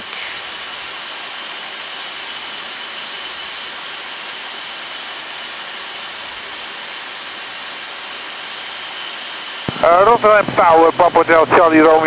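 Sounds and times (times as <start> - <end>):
air rush and engine noise: 0.0 - 12.0
faint high whine: 1.6 - 12.0.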